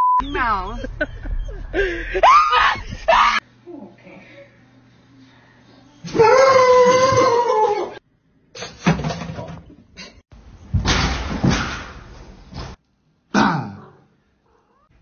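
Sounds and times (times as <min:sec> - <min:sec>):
long wailing cry: 0:06.1 - 0:08.0.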